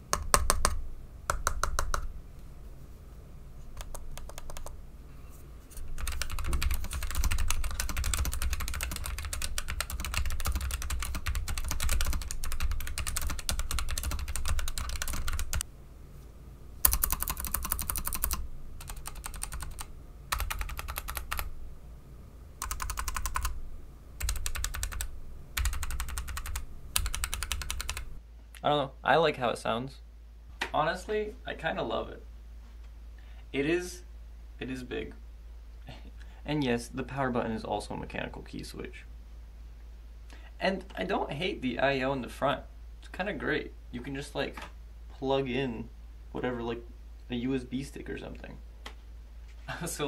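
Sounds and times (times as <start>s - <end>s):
fast typing on laptop keyboard: 3.8s - 4.8s, 5.9s - 15.6s, 16.8s - 21.5s, 22.6s - 23.6s, 24.2s - 28.2s.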